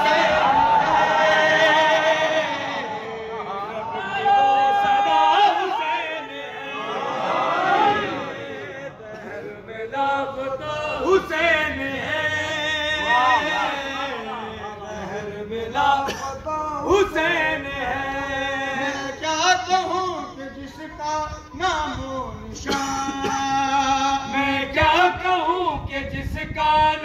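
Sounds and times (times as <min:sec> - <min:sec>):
man chanting devotional song: 0:09.1 - 0:27.0.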